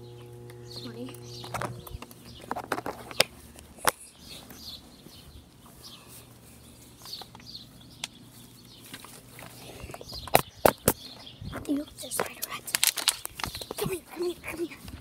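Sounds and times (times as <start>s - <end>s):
low steady hum: 0.0s - 10.0s.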